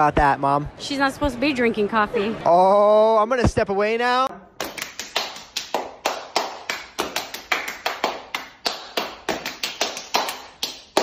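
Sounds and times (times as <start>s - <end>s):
hand claps and slaps: 4.6s - 11.0s.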